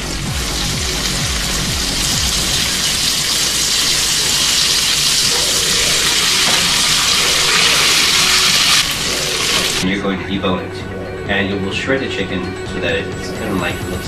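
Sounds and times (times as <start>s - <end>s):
chicken sizzling in hot oil: 0.0s - 9.8s.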